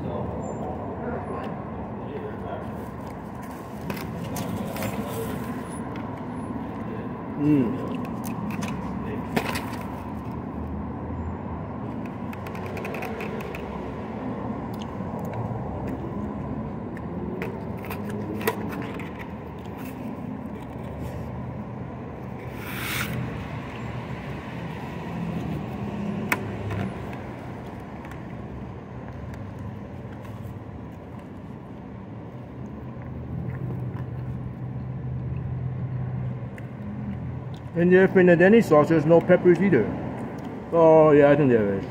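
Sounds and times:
plastic fork clicking and scraping: 12.0s - 13.7s.

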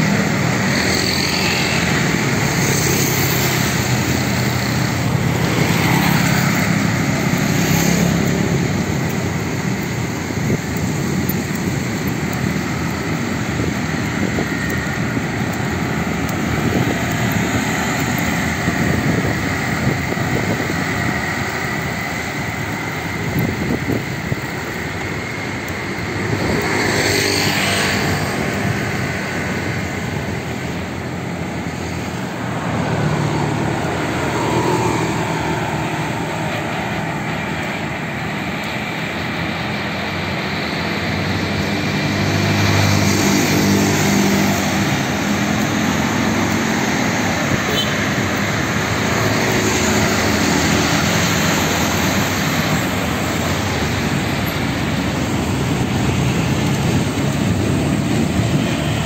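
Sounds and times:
road and traffic noise: 0.0s - 59.0s
wind buffeting microphone: 1.8s - 26.9s.

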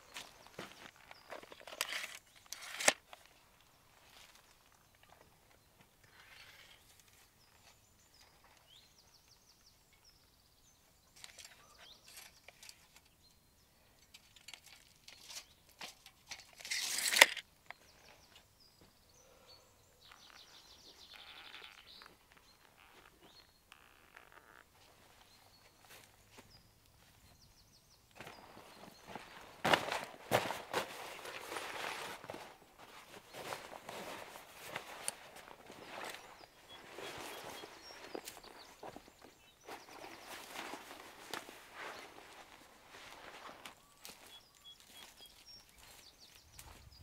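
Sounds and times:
tape measure snapping shut: 1.7s - 3.0s, 14.6s - 17.4s
tape measure blade rattling: 14.3s - 17.4s.

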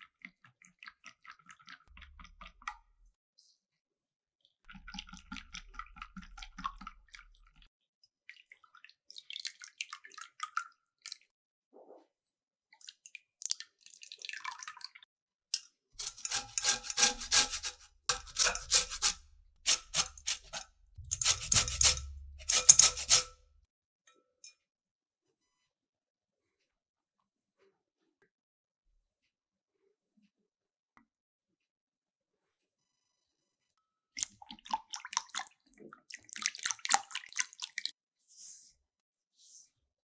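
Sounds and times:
utensil scraping a mixing bowl: 16.0s - 23.5s.

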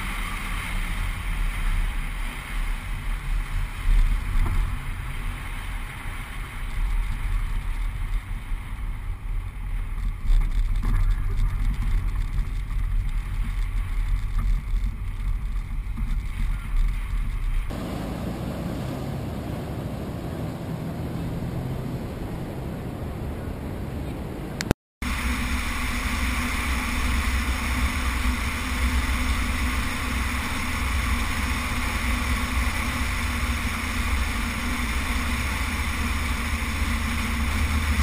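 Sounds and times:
surf washing: 0.0s - 9.8s, 17.7s - 38.0s
vehicle running and tyre noise: 0.0s - 38.0s
wind rumble on microphone: 0.0s - 38.0s.

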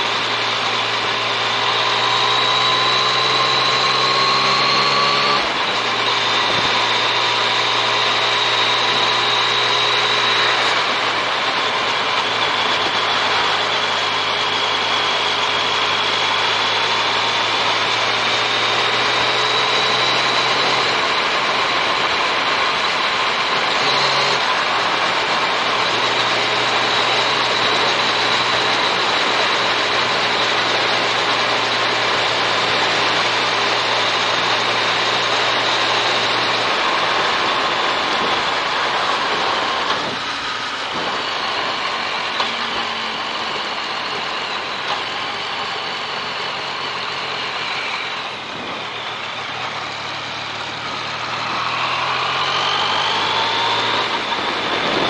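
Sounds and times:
motorcycle engine cruising: 0.0s - 55.0s
wind noise rushing: 54.0s - 55.0s.

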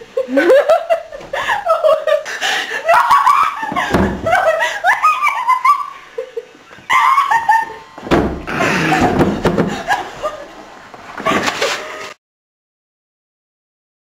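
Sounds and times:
girls giggling and squealing: 0.0s - 12.1s
thump: 3.7s - 4.3s, 8.0s - 9.8s.

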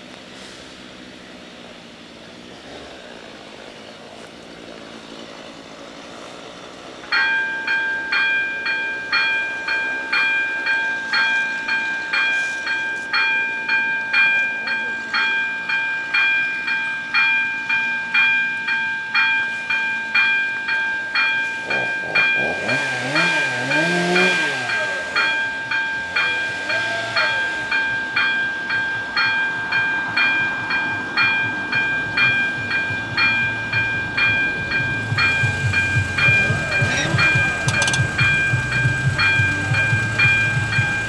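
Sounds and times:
level crossing bells ringing: 7.1s - 41.0s.

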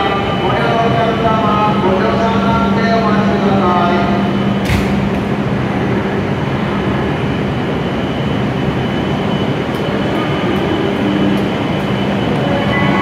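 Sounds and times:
train noise at platform: 0.0s - 13.0s
thin high whine: 5.7s - 13.0s.

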